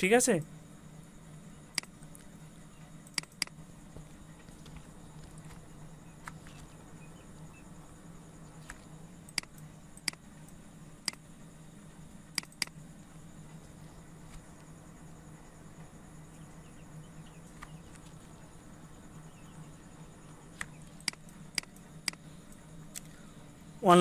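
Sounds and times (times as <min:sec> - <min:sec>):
steady low hum: 0:00.0 - 0:24.0
computer mouse clicking: 0:03.0 - 0:03.6, 0:08.6 - 0:11.2, 0:12.3 - 0:12.8, 0:20.6 - 0:23.1.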